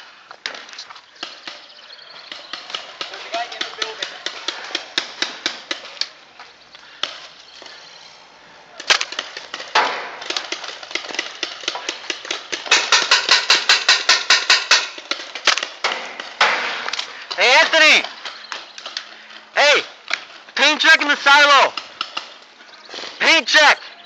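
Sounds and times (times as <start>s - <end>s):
paintball markers firing: 0.4s - 6.2s, 8.7s - 19.2s, 21.0s - 23.2s.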